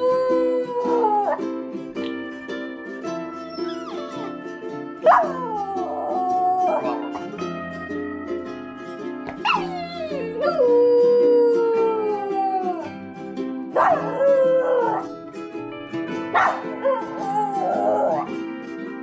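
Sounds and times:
puppy howling: 0:00.0 - 0:01.5, 0:03.3 - 0:07.3, 0:09.4 - 0:13.0, 0:13.7 - 0:15.1, 0:16.4 - 0:18.4
ukulele music: 0:00.0 - 0:19.0.

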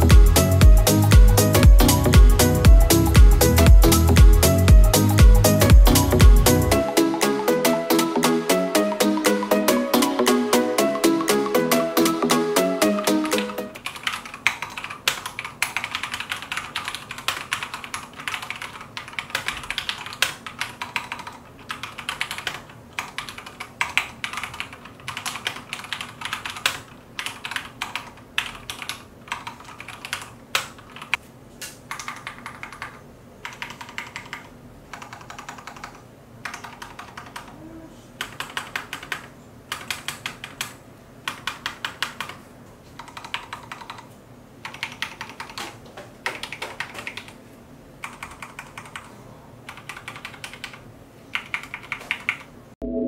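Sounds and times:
mechanical keyboard typing: 0:12.9 - 0:31.2, 0:31.9 - 0:37.5, 0:38.2 - 0:42.4, 0:43.0 - 0:47.4, 0:48.0 - 0:49.1, 0:49.7 - 0:52.5.

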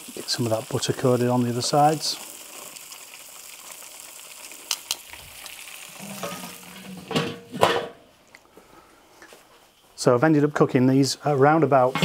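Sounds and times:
butter sizzling: 0:00.0 - 0:07.6.

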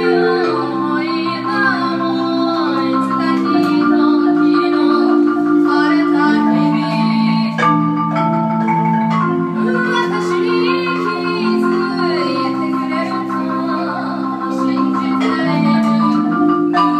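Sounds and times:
marimba chords: 0:00.0 - 0:16.9.

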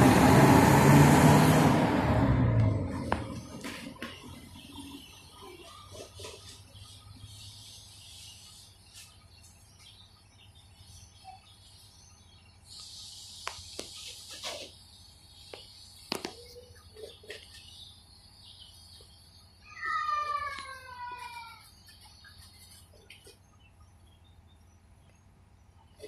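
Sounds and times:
insects buzzing: 0:03.1 - 0:20.0.

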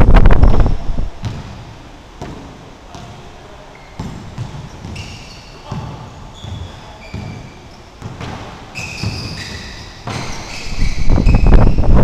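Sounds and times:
basketball bouncing on hardwood floor: 0:01.2 - 0:01.6, 0:04.0 - 0:05.1, 0:05.7 - 0:07.4
sneakers squeaking: 0:01.2 - 0:12.0.

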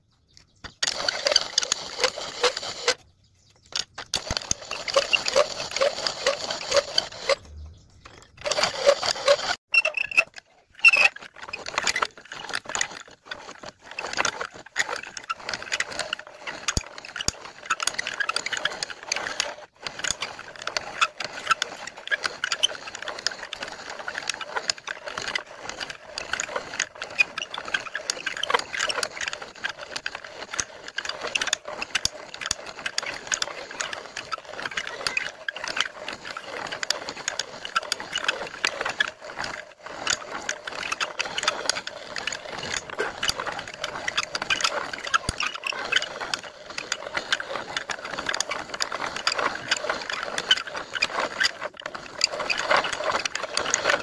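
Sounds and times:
lathe cutting metal rattling: 0:04.0 - 0:07.4, 0:08.0 - 0:10.2.

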